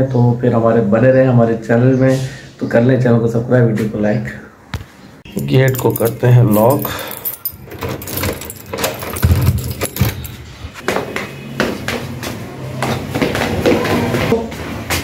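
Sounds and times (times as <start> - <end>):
keys jangling in door lock: 5.3 - 10.5
footsteps going down stairs: 7.8 - 15.0.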